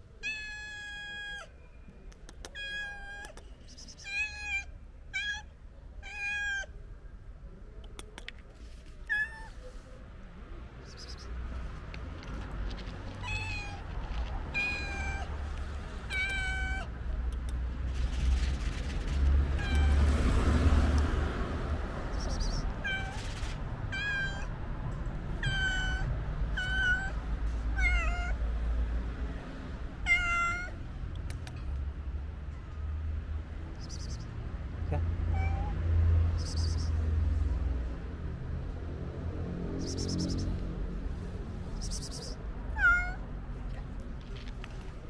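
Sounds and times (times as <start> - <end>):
cat meowing: 0.2 - 1.5, 2.5 - 6.8, 9.0 - 9.7, 13.2 - 15.4, 16.0 - 16.9, 19.6 - 20.2, 22.2 - 24.5, 25.4 - 28.4, 30.0 - 30.8, 35.3 - 35.8, 42.7 - 43.3.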